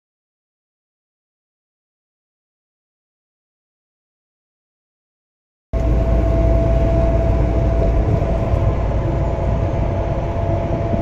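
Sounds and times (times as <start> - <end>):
low rumble of moving vehicles: 5.8 - 11.0.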